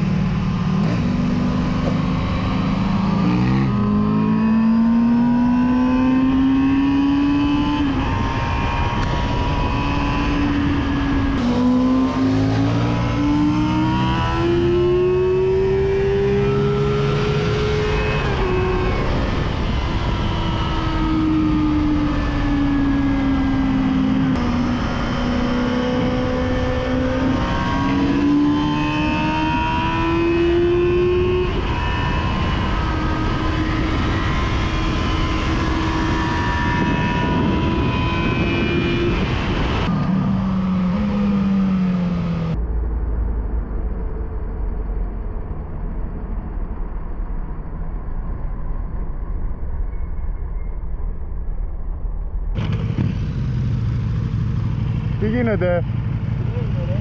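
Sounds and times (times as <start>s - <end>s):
motorcycle engines revving: 0.0s - 42.6s, 52.6s - 57.0s
heavy wind rush: 17.1s - 49.8s.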